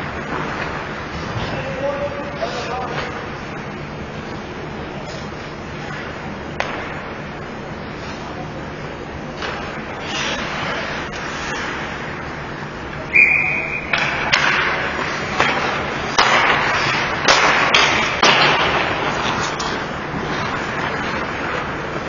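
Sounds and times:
hockey sticks and puck clacking: 0.0 - 3.6, 5.2 - 7.2, 9.3 - 22.0
whistle blast: 13.1 - 13.9.

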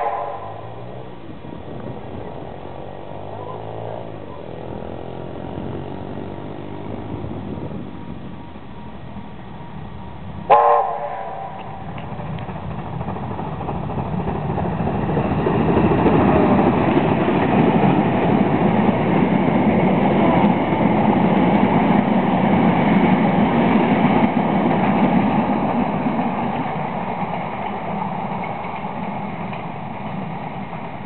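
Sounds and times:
steam train passing rumble: 0.0 - 31.0.

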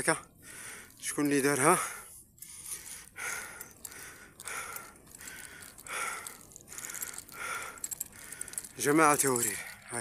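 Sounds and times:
person breathing hard: 0.4 - 1.0, 1.8 - 8.8.

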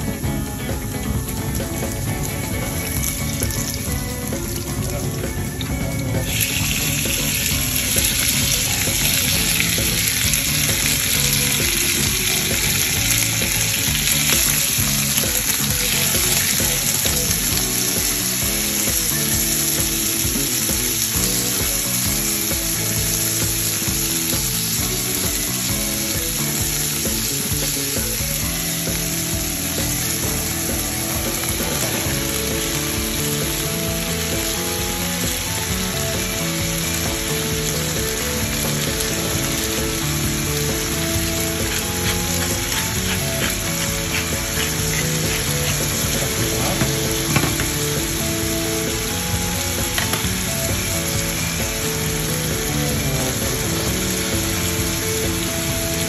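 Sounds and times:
meat sizzling in a frying pan: 0.1 - 56.0.

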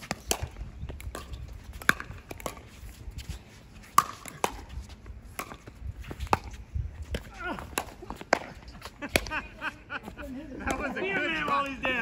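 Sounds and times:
paddle striking pickleball: 1.1 - 2.6, 3.9 - 4.7, 5.3 - 9.3.

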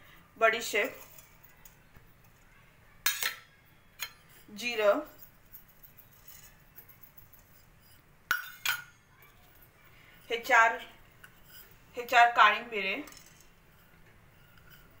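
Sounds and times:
metal bowl clinking on pan: 3.0 - 9.3.

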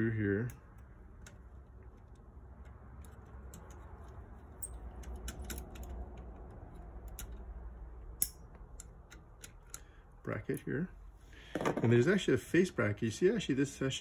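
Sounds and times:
small metallic screw clicks: 0.5 - 9.9.

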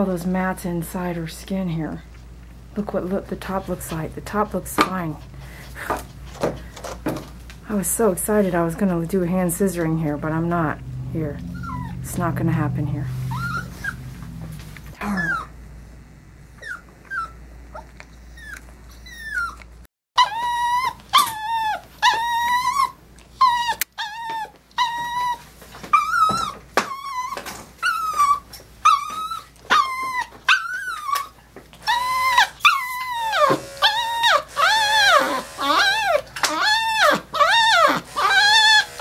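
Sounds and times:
dog whining: 10.9 - 12.4, 13.1 - 15.6, 16.6 - 39.0.

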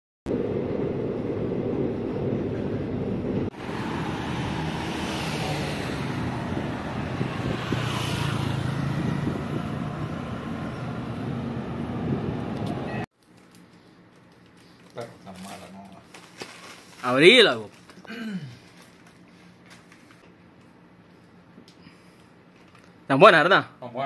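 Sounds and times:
road traffic rumble: 0.3 - 13.1
vehicles passing: 0.3 - 13.1.

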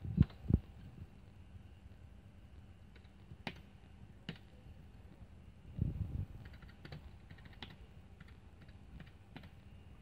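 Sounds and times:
computer keyboard clicks: 2.9 - 3.7, 6.4 - 9.6.

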